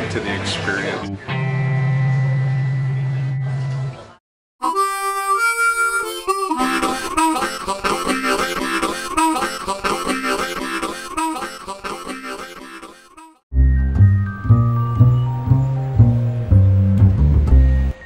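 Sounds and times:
background music: 4.6 - 18.0.

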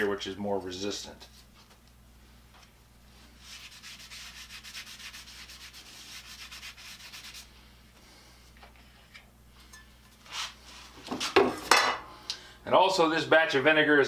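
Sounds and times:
rasping scrubbing strokes on metal: 3.4 - 7.5.

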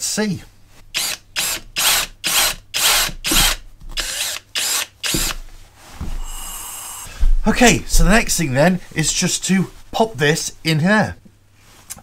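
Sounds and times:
cordless drill boring: 1.0 - 5.4.

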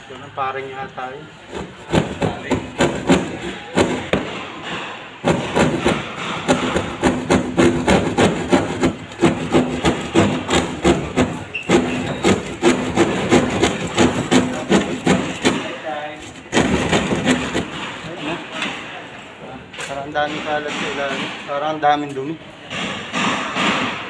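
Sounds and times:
hand saw cutting ceiling panel: 5.2 - 18.5.

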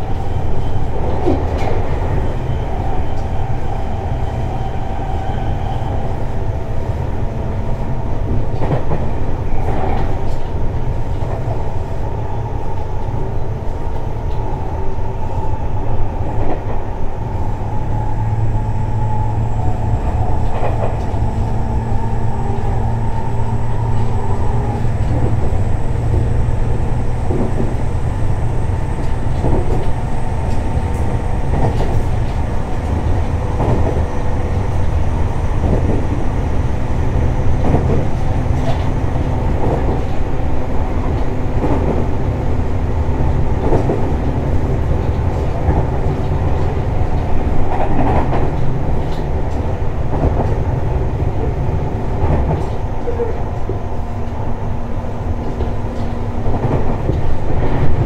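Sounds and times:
train wheels rumbling on rail: 0.0 - 58.0
rail-joint clacks: 0.6 - 3.4, 8.1 - 12.0, 19.6 - 58.0.

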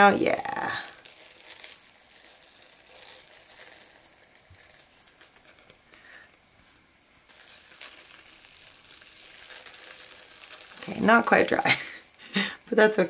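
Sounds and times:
plastic cling wrap crinkling: 0.0 - 6.5, 7.2 - 13.0.

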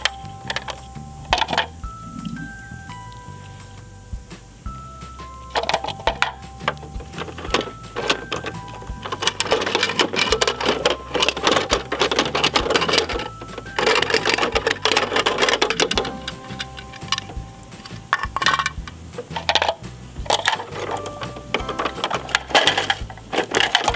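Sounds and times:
plastic toy clicking and ratcheting: 5.5 - 23.9.

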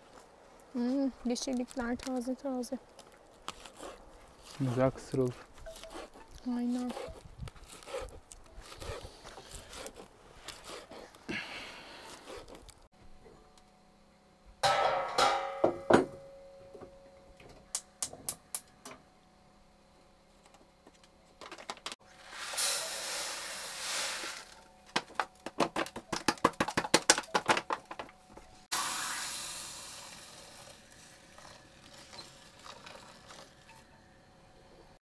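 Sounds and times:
hissing: 22.2 - 24.6, 28.7 - 33.7.

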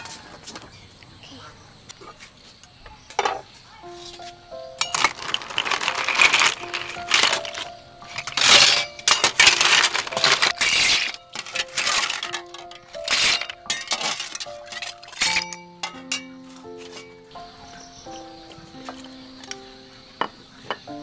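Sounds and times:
background music: 3.8 - 21.0
shells clattering against metal pot: 4.8 - 17.2.

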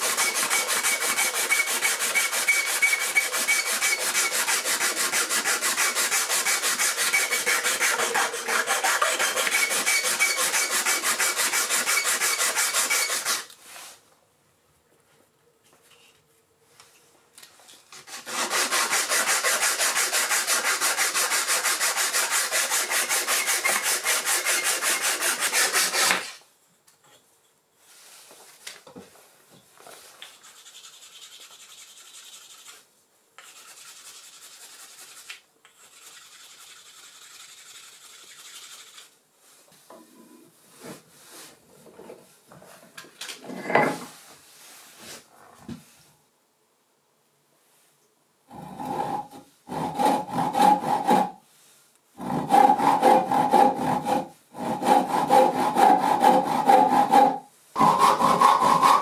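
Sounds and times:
rasping on wood: 0.0 - 13.4, 18.1 - 26.2, 48.5 - 51.4, 52.2 - 59.0
scraping wood: 52.2 - 59.0.

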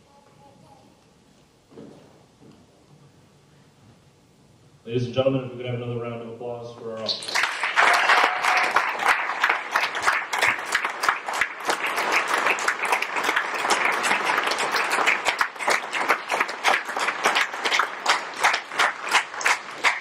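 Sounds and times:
audience applauding: 7.1 - 20.0.

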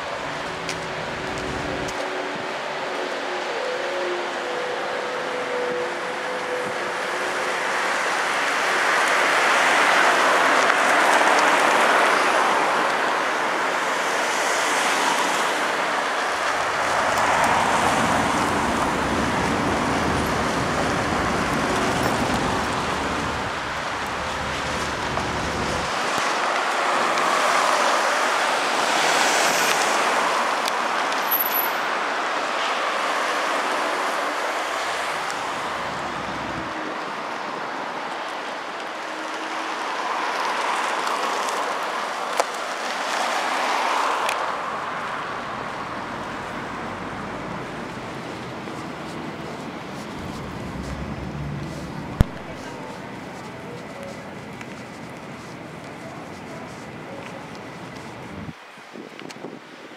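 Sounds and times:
cars passing: 0.0 - 58.6.

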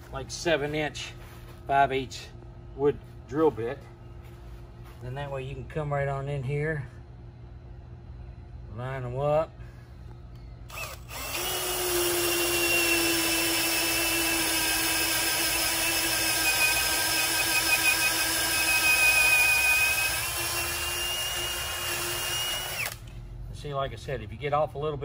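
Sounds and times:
cordless drill boring wood: 10.7 - 23.1.

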